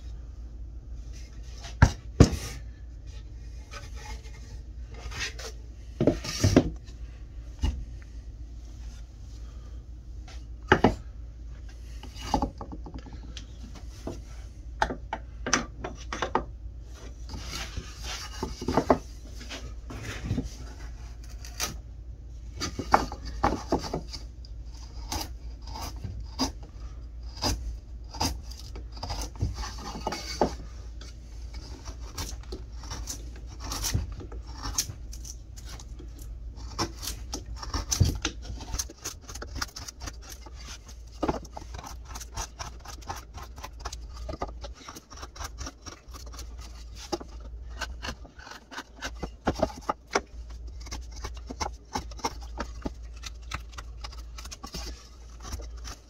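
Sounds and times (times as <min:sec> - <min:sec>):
gouge scraping wood: 0:01.2 - 0:06.7, 0:17.0 - 0:21.7, 0:22.6 - 0:56.0.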